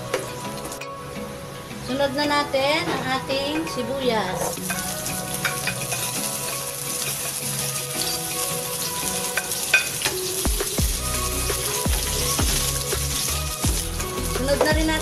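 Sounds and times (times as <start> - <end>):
onions sizzling in hot oil: 4.1 - 14.7.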